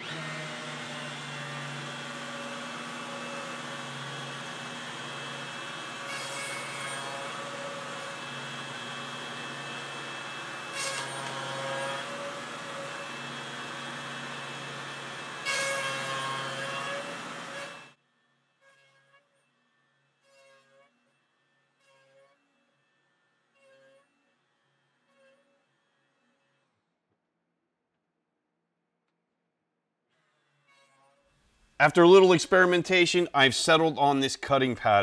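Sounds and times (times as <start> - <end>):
router whining: 0.0 - 18.0.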